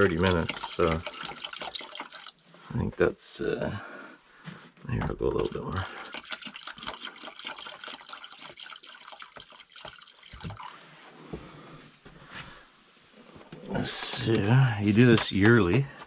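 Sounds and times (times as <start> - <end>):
liquid pouring into water: 0.0 - 2.8, 5.4 - 10.8.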